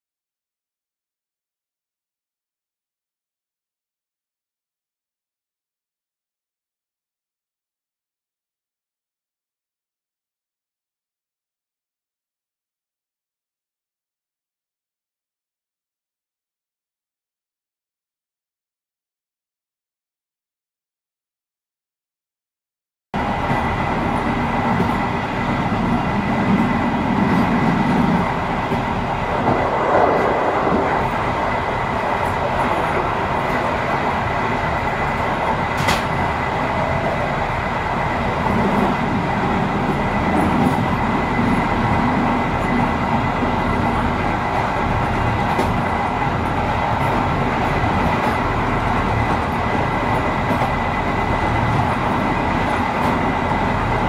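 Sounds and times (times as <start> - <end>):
train rumbling on rails: 23.2 - 54.0.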